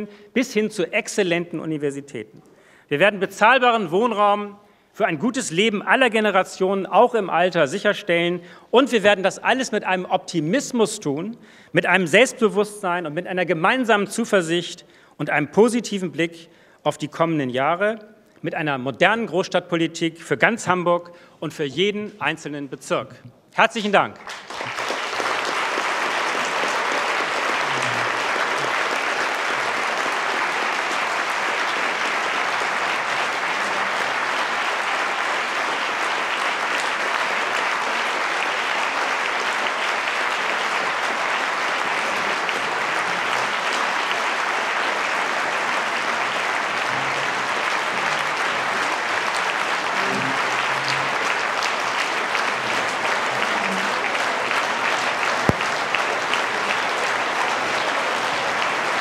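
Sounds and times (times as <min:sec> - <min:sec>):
audience applauding: 0:24.2 - 0:59.0.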